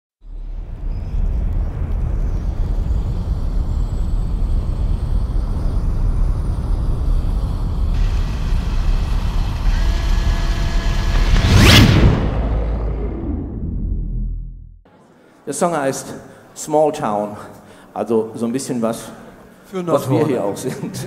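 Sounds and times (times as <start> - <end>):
low steady rumble: 0.4 - 14.9
faint high whistle rising: 2.2 - 14.0
hiss: 2.4 - 11.0.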